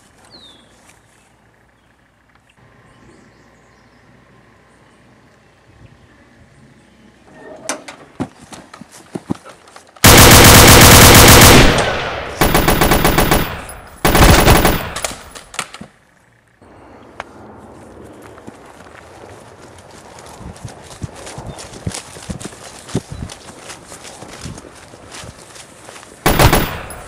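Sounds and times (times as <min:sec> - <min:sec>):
machine-gun fire: 0:10.0 - 0:15.5, 0:26.3 - 0:27.0.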